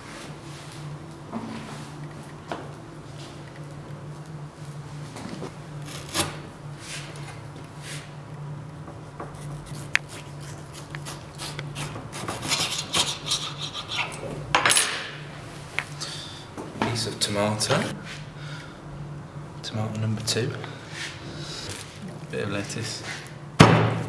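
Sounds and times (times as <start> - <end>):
knife scraping butter on bread: 9.2 - 14.2
knife sawing through tomato: 9.3 - 14.2.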